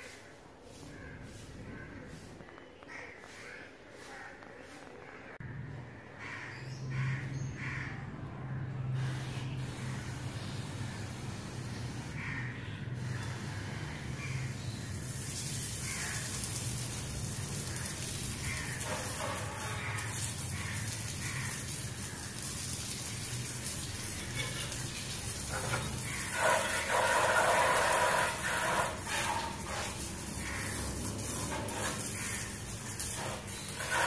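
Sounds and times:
water spraying from hose: 8.9 - 34.0.

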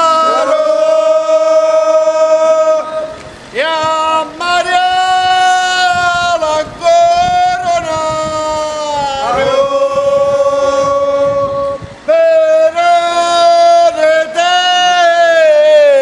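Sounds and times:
person singing a devotional chant: 0.0 - 16.0.

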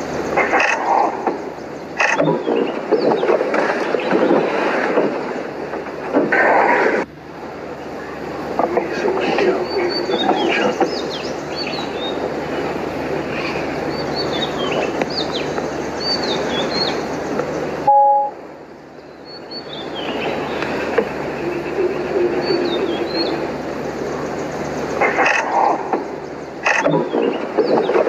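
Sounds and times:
steady rumbling noise: 0.0 - 28.0
small birds chirping: 7.8 - 28.0
short electronic beep: 17.9 - 18.4.

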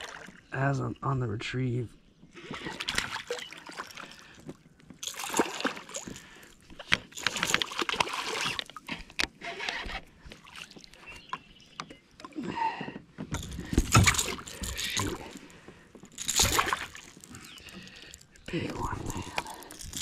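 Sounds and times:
clicks and knocks from rod and reel: 6.0 - 12.1, 13.2 - 15.4.

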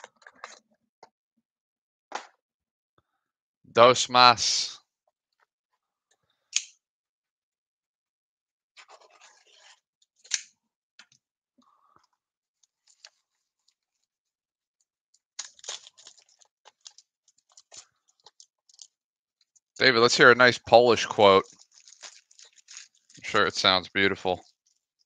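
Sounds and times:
foil card pack crinkling and tearing: 15.4 - 18.9, 21.0 - 23.8.

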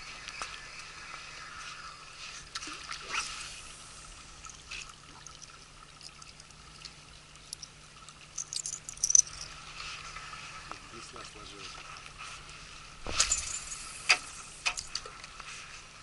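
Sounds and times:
faint water wash: 0.0 - 16.0
metal fishing lure clicking: 8.4 - 9.4.

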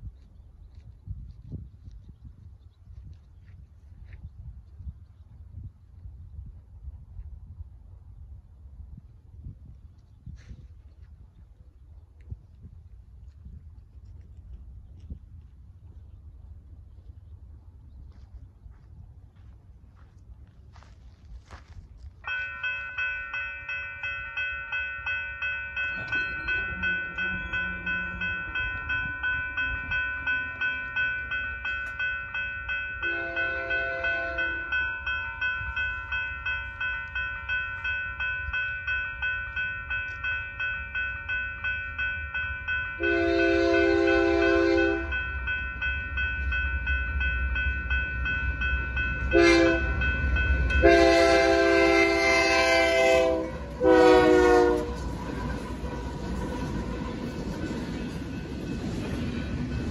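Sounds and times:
freight train rumble: 2.9 - 59.9
railroad crossing bell ringing: 20.7 - 59.9
train air horn blasts: 33.0 - 34.8, 43.0 - 45.2, 49.3 - 50.0, 50.8 - 56.1.

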